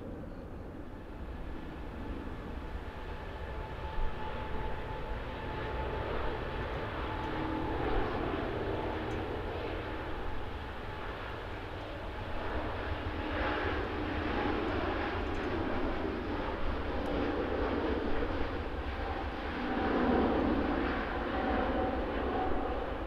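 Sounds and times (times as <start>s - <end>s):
jet engine rumble: 0.0s - 23.0s.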